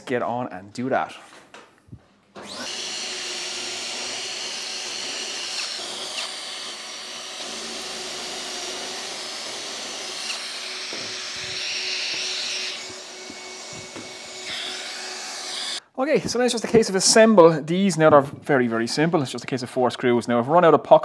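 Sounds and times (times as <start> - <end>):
cordless drill boring into wood: 2.4 - 15.8
dust extractor running: 2.4 - 15.8.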